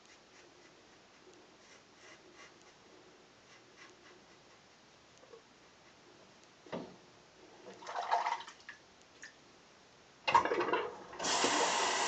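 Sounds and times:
rush of tap water: 10.3 - 12.0.

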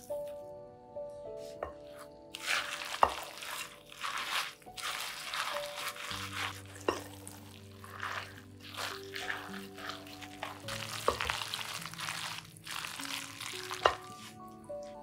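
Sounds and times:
background music: 0.0 - 15.0
spatula scraping in a bowl: 1.9 - 11.2.

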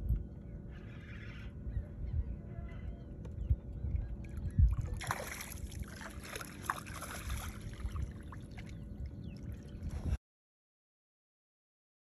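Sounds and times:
wind rumble on microphone: 0.0 - 10.2
water splashing: 4.8 - 8.7.

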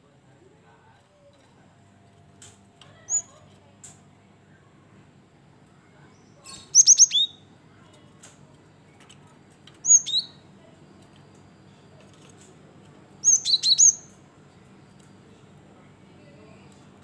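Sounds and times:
bird calling with whistled notes: 6.2 - 7.4, 9.8 - 10.4, 13.2 - 14.1.

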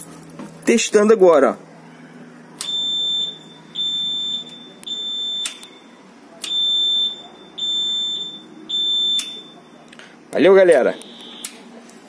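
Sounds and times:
reverse alarm beeps: 2.6 - 9.9, 10.9 - 11.6.

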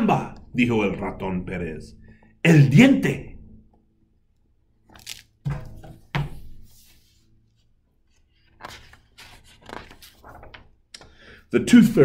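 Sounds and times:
pages rustling: 4.8 - 11.2
book thumping on wooden table: 5.4 - 6.6
soft brush on table: 6.3 - 7.7.

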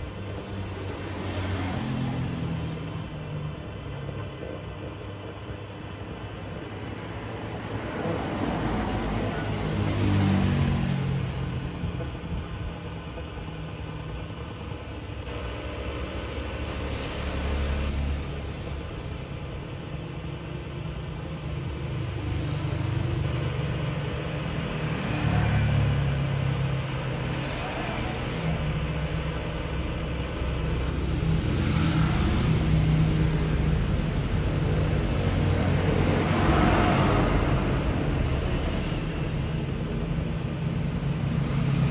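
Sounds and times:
steady low rumble: 10.7 - 17.6, 28.6 - 41.9.

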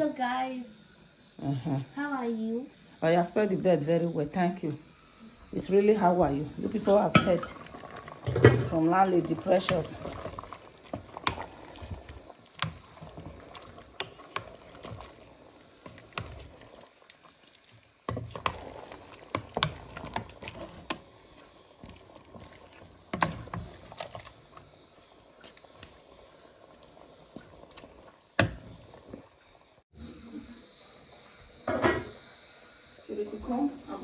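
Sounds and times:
liquid sloshing in a pot: 6.2 - 29.8
spoon knocking and scraping pot: 6.7 - 7.6, 8.2 - 10.1, 18.1 - 21.0, 23.1 - 24.3.

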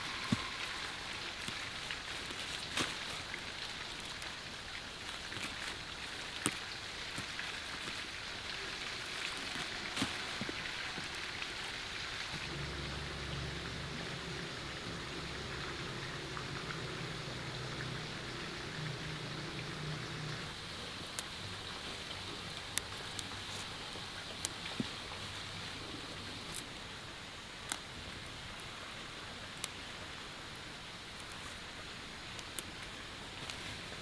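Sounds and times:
low steady hum: 0.0 - 30.4
leaves rustling: 0.0 - 34.0
steady hiss: 0.0 - 34.0
stems snapping: 0.1 - 11.6, 26.4 - 26.7, 27.6 - 27.9, 31.2 - 31.6, 32.3 - 33.7.

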